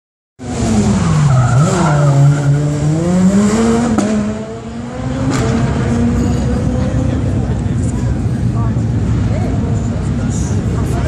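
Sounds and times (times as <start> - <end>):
rally car engine revving: 0.4 - 11.0.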